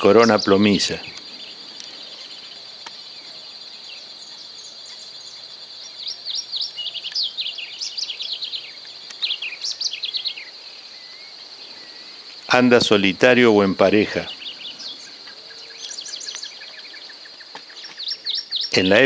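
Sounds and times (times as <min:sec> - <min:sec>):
high insect drone: 0:00.0 - 0:19.0.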